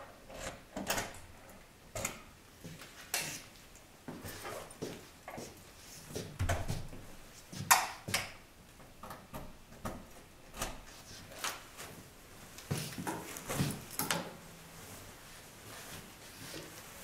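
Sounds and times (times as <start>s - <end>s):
footsteps: 4.1s - 8.2s, 10.9s - 17.0s
rustling: 10.8s - 17.0s.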